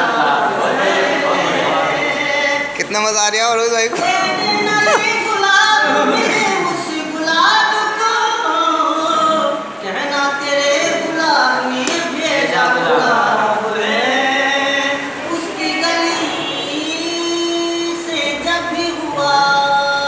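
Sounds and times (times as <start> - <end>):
man singing unaccompanied: 0.0 - 20.0.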